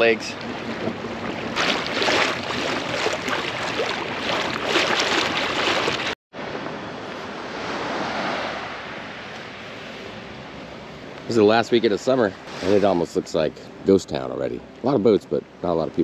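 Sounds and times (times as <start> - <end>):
waves washing: 0.0 - 6.2, 7.2 - 9.8, 11.3 - 13.2.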